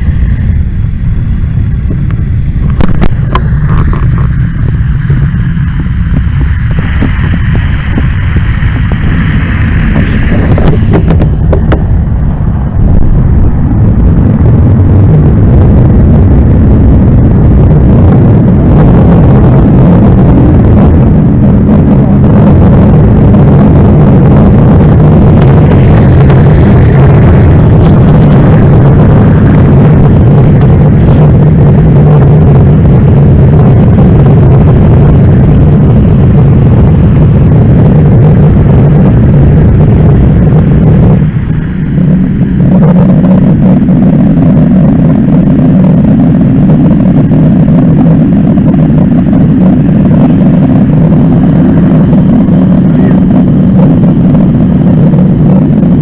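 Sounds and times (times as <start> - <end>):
rushing hiss: 0.0 - 12.6
engine running at high revs: 0.0 - 56.0.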